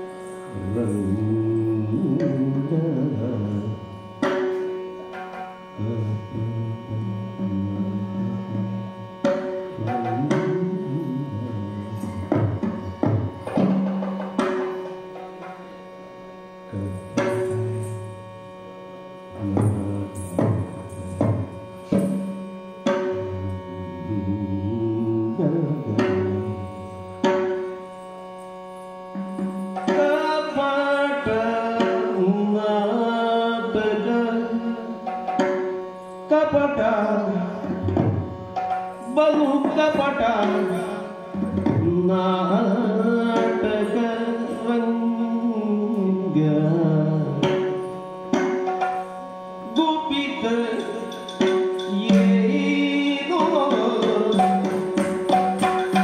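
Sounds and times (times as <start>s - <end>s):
melismatic singing: 0.0s - 56.0s
steady drone: 0.0s - 56.0s
drum strokes: 11.9s - 15.7s.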